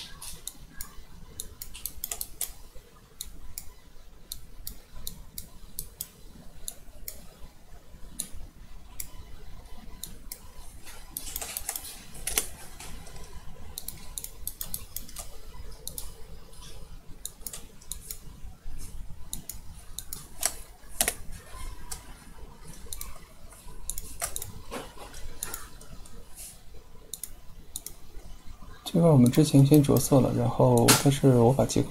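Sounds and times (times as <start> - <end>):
mouse and keyboard clicking: 0.0 - 7.4, 9.9 - 18.3, 19.3 - 26.2, 27.1 - 28.0
low steady hum: 0.0 - 31.9.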